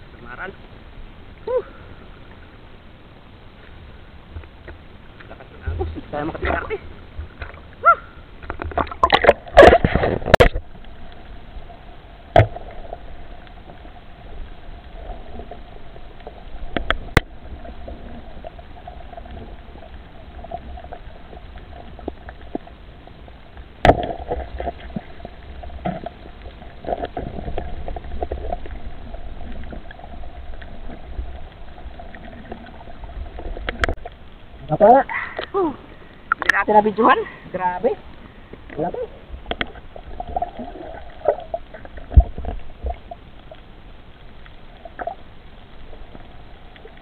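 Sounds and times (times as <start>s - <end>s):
faint underwater hum and rumble: 0.0s - 47.0s
knocks and splashing: 8.4s - 10.7s, 12.3s - 13.0s, 23.8s - 25.2s.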